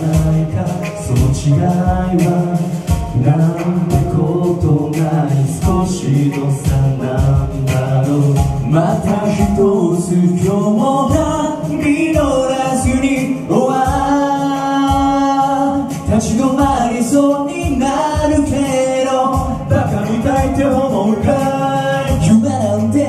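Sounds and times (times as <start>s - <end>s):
male voices singing: 0.0s - 23.0s
musical accompaniment with beat: 0.0s - 23.0s.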